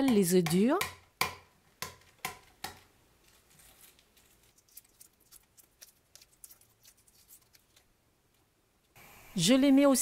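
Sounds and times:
egg shell tapping on board: 0.0 - 2.8
egg shell crackling as peeled: 3.4 - 7.9.

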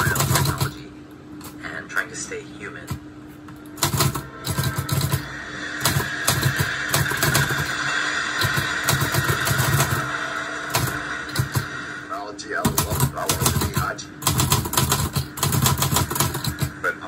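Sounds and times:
manual typewriter clatter: 0.0 - 0.7, 3.8 - 5.2, 12.7 - 16.7
steady background tone: 0.0 - 17.0.

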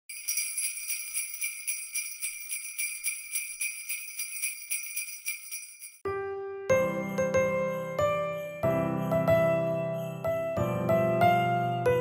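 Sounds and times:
sleigh bells jingling: 0.0 - 6.1, 7.7 - 10.6.

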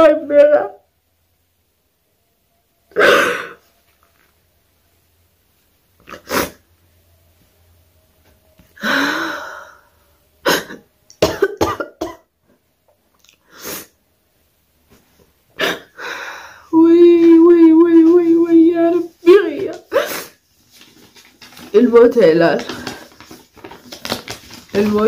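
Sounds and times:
woman coughing: 2.9 - 3.6, 10.4 - 12.3
woman crying and sobbing: 15.6 - 20.4.

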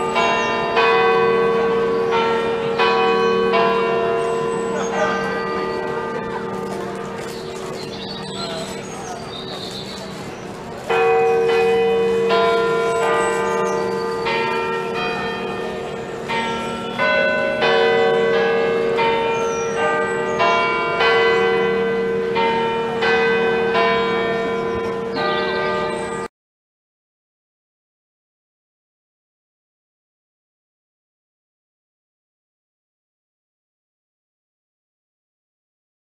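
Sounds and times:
church bells ringing: 0.0 - 26.3.

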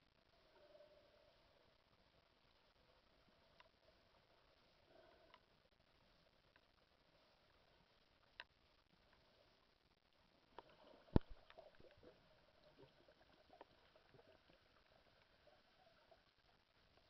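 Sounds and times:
faint clicks and crackles: 0.0 - 17.0
faint hiss: 0.0 - 17.0
sharp underwater click: 10.6 - 11.7.

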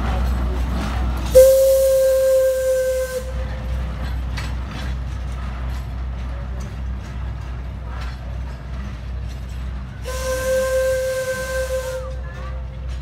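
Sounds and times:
locomotive running rumble: 0.0 - 13.0
steam whistle blast: 1.3 - 3.4, 10.0 - 12.2
steam hissing: 10.0 - 12.9.

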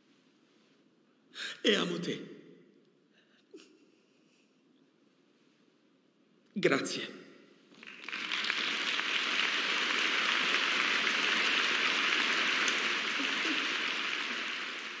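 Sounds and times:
large audience applauding: 7.7 - 15.0.

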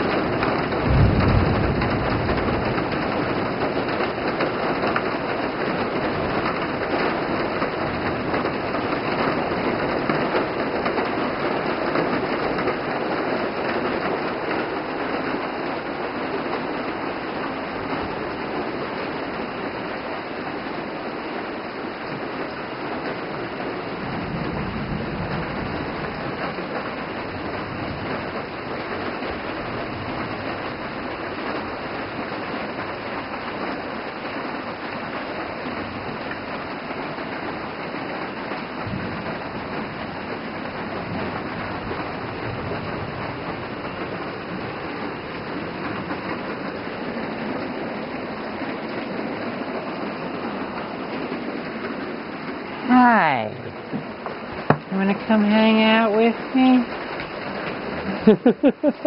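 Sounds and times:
heavy rain downpour: 0.0 - 59.0.

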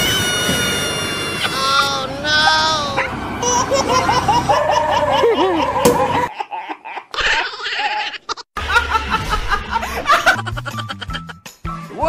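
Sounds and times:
people laughing: 3.4 - 11.4
woman laughing hard: 3.4 - 11.4.

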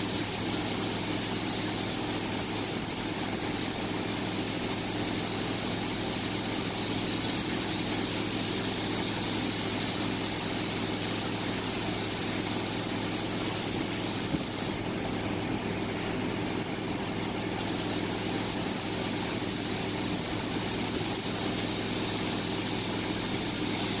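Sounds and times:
paint spray gun hissing: 0.0 - 14.8, 17.6 - 24.0
low machine hum: 0.0 - 24.0.

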